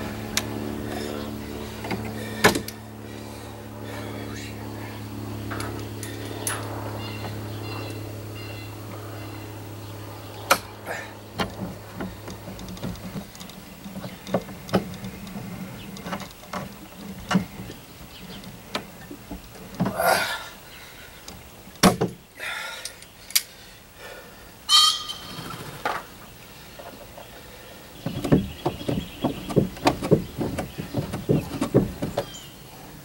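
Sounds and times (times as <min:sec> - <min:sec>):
wood and metal knocks and scrapes: 0:28.0 - 0:32.4
scraping clatters: 0:28.0 - 0:32.5.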